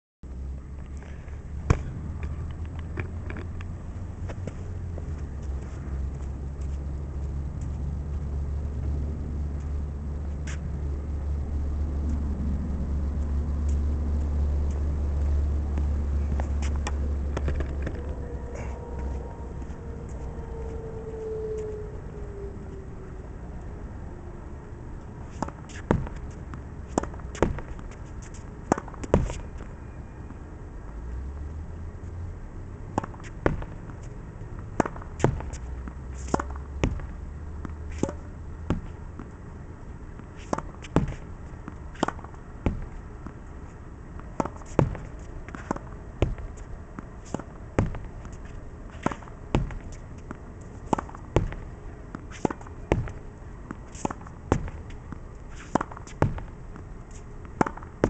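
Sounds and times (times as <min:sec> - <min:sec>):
low rumble: 0:00.3 - 0:27.8
racket hitting tennis ball: 0:13.7 - 0:20.3, 0:25.2 - 0:29.6, 0:32.9 - 0:39.4, 0:40.1 - 0:58.0
ball hitting wall and bouncing: 0:44.2 - 0:46.6, 0:47.3 - 0:48.1, 0:48.9 - 0:50.0, 0:50.9 - 0:51.7, 0:52.4 - 0:53.2, 0:54.0 - 0:54.9, 0:55.6 - 0:56.5, 0:57.5 - 0:58.0.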